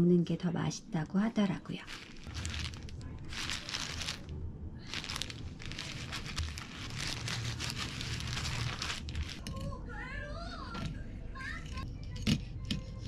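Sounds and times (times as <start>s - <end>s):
low steady hum: 0.0s - 13.0s
plastic gloves crinkling: 1.8s - 9.6s.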